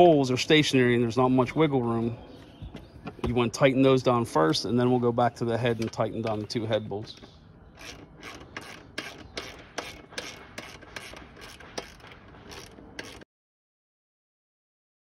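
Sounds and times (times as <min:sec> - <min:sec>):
ratchet wrench clicking: 0:07.8 - 0:13.2.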